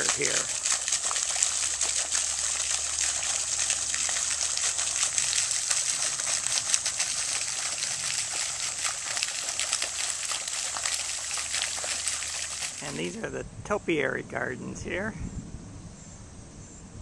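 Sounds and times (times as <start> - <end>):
fountain water splashing: 0.0 - 13.2.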